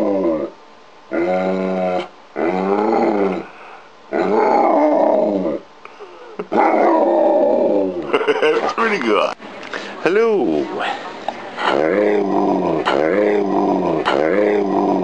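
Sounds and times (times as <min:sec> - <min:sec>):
dog howling grumbling calls: 0:00.0 - 0:05.7, 0:06.5 - 0:08.2, 0:11.6 - 0:15.0.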